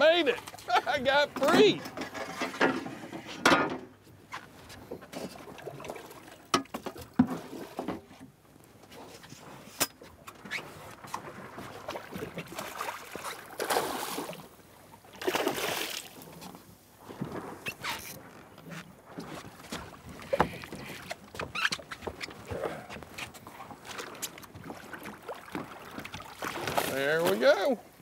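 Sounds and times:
water sloshing against hull: 0.0 - 28.0
fish splashing and thrashing: 10.9 - 16.4, 17.5 - 27.4.

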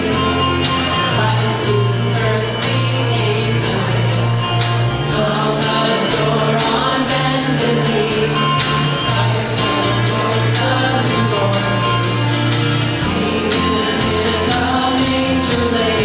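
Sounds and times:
bass line: 0.0 - 16.0
drum kit: 0.0 - 16.0
guitars: 0.0 - 16.0
keyboard: 0.0 - 16.0
person singing: 13.0 - 16.0.

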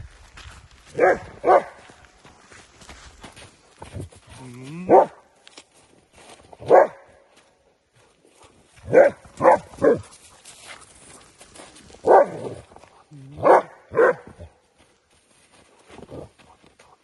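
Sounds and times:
dog barking: 0.9 - 1.8, 4.9 - 5.2, 6.6 - 7.1, 8.8 - 10.1, 12.0 - 12.6, 13.4 - 14.5.

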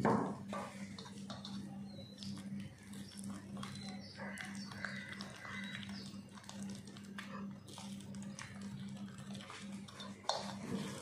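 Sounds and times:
whisk beating batter in metal bowl: 0.4 - 11.0.

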